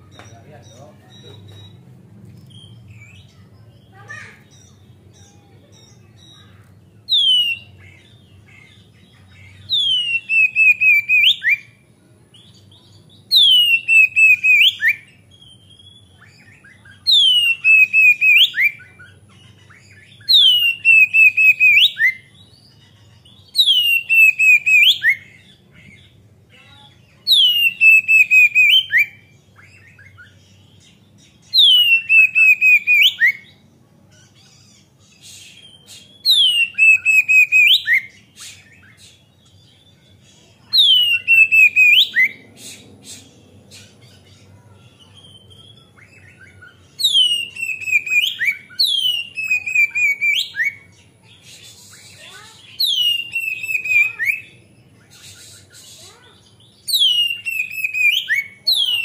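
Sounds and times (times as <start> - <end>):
bird singing whistles and rattles: 45.2 - 50.8, 51.9 - 54.5, 56.9 - 59.0.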